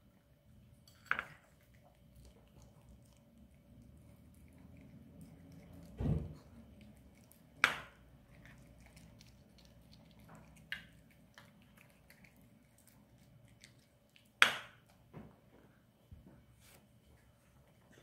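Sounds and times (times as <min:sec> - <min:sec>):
dog chewing and licking: 0:01.2 - 0:14.4.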